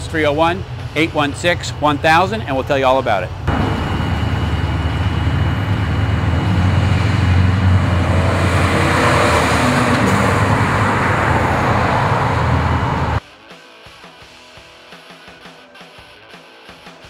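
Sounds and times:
low rumble of passing cars: 3.3 - 13.2
car driving past: 3.5 - 13.2.

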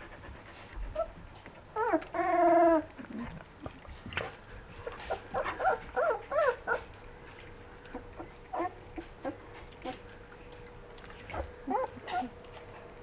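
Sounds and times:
puppies whimpering: 0.8 - 3.3, 4.8 - 7.0, 7.9 - 10.1, 11.3 - 12.4.

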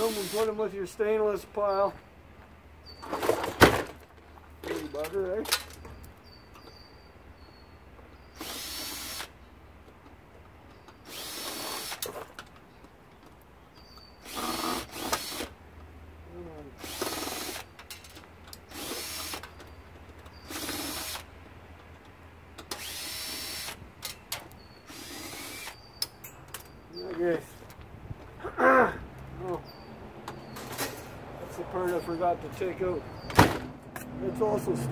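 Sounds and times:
power drill backing out screws: 8.3 - 9.4, 10.7 - 12.3, 13.8 - 15.5, 16.8 - 21.3, 22.6 - 25.9.

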